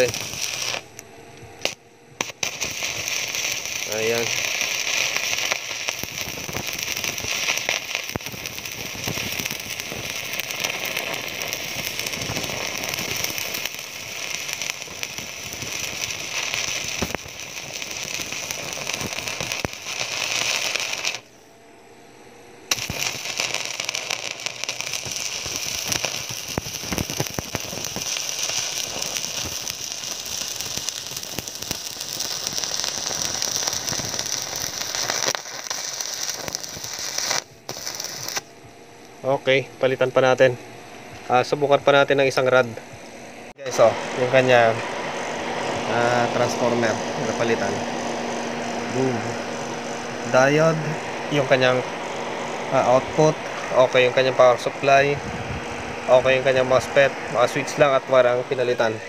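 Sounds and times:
welding arc crackling: 0:00.0 - 0:21.4, 0:22.7 - 0:38.6, 0:41.2 - 0:59.0.

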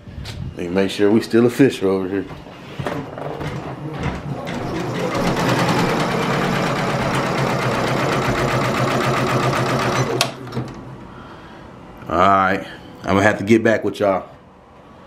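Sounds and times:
embroidery machine stitching: 0:04.0 - 0:10.8.

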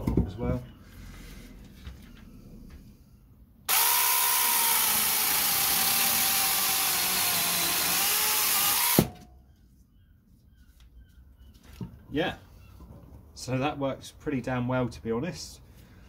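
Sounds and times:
mini chainsaw cutting log: 0:03.7 - 0:09.2.

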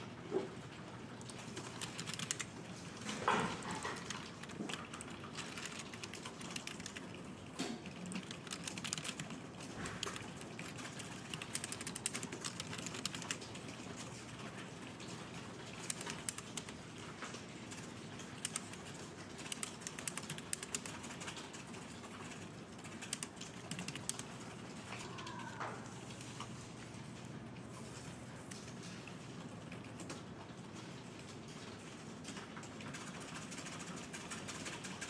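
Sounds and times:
fast keyboard typing: 0:01.2 - 0:25.1, 0:32.3 - 0:35.0.

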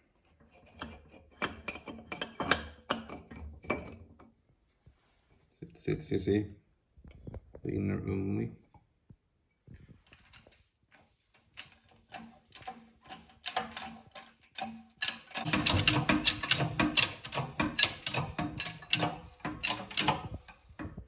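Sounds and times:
hydraulic press clicks and knocks: 0:12.6 - 0:21.0.

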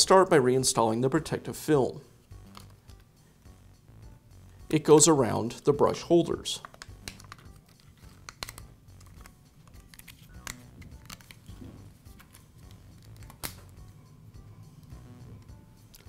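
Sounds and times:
plastic film crackling and clicking: 0:06.6 - 0:11.5, 0:12.1 - 0:13.7.

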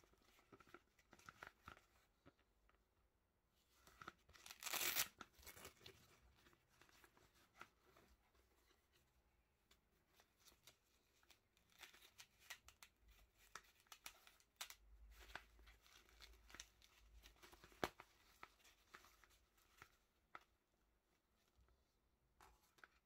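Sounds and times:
fabric sheath rustling and scraping: 0:03.8 - 0:09.3.

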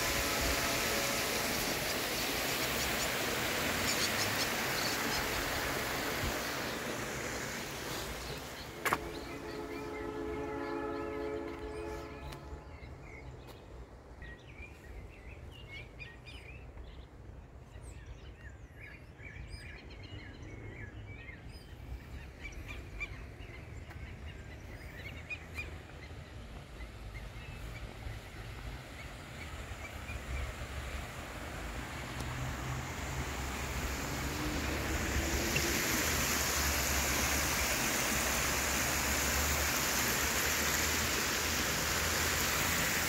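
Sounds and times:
hiss: 0:00.0 - 0:08.8, 0:28.2 - 0:43.0
small birds chirping: 0:01.6 - 0:07.0.

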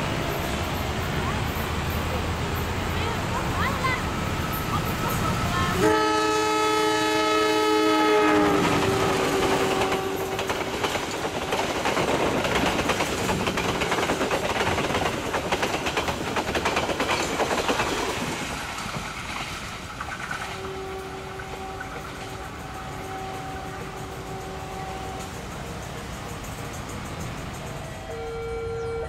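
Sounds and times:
train horn blast: 0:05.6 - 0:10.9, 0:20.5 - 0:25.6, 0:27.9 - 0:29.0
train wheels clattering over rail joints: 0:08.1 - 0:28.0.

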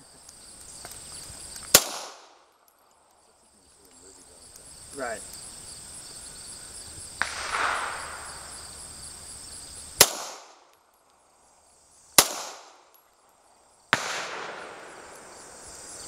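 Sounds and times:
pistol shots with echo: 0:01.7 - 0:02.4, 0:07.2 - 0:08.7, 0:10.0 - 0:10.7, 0:12.2 - 0:12.9, 0:13.9 - 0:15.6.

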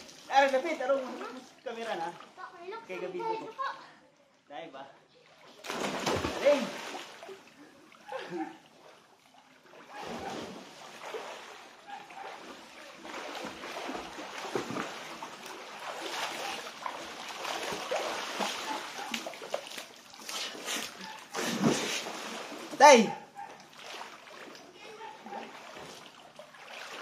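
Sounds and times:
swimmers splashing in water: 0:05.4 - 0:27.0.

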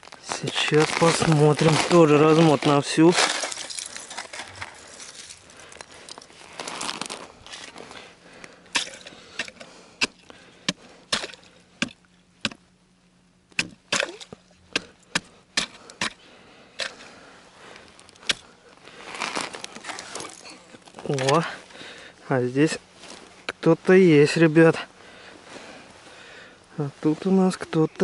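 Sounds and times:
ice chisel chipping ice: 0:08.7 - 0:12.6, 0:18.2 - 0:18.4.

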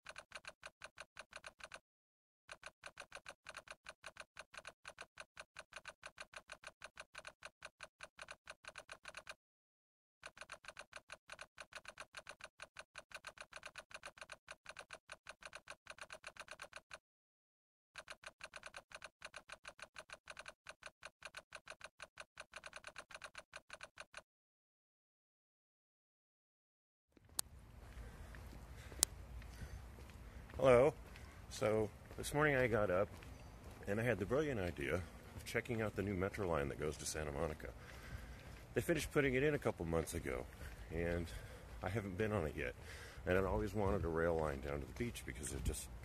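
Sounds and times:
keyboard typing: 0:00.0 - 0:01.8, 0:02.5 - 0:09.4, 0:10.2 - 0:17.0, 0:18.0 - 0:24.2.

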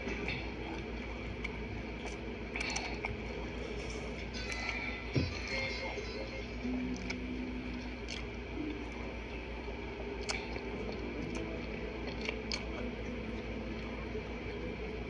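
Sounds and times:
chewing: 0:00.0 - 0:05.6, 0:06.8 - 0:14.0
wet mouth clicks and smacks: 0:08.0 - 0:08.4.

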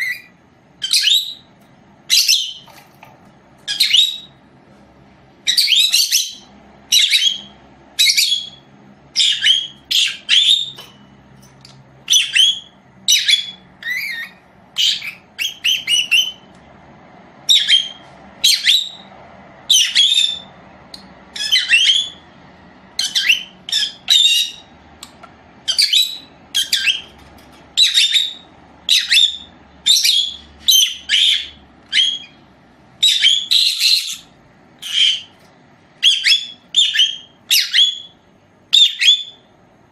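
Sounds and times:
parrot squawking: 0:00.0 - 0:01.5, 0:02.1 - 0:02.7, 0:03.6 - 0:04.4, 0:05.4 - 0:10.9, 0:12.0 - 0:16.5, 0:17.5 - 0:19.1, 0:19.7 - 0:22.2, 0:23.0 - 0:24.7, 0:25.6 - 0:27.1, 0:27.8 - 0:32.4, 0:33.0 - 0:35.4, 0:36.0 - 0:39.4.

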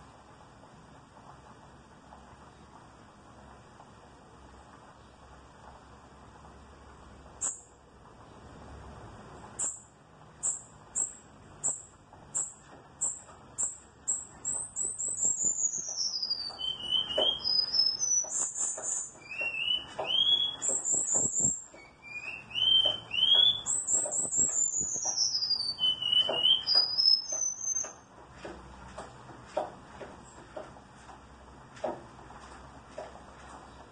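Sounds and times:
bird singing trills and whistles: 0:10.4 - 0:28.0.

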